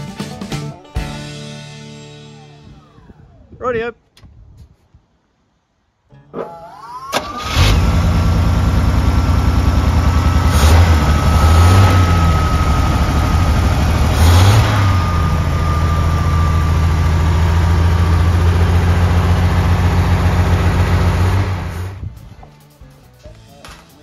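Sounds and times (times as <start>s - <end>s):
truck engine idling and revving: 6.7s - 22.4s
thin steady whine: 9.4s - 22.0s.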